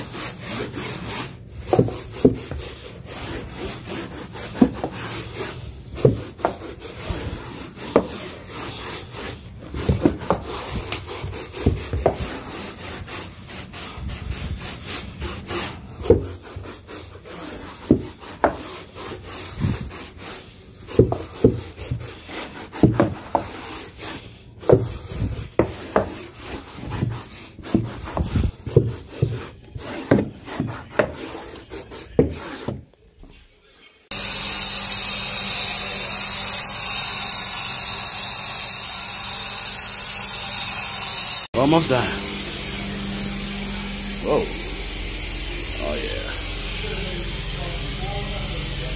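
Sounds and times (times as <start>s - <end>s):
brush scrubbing carpet: 0.0s - 34.2s, 41.5s - 42.3s.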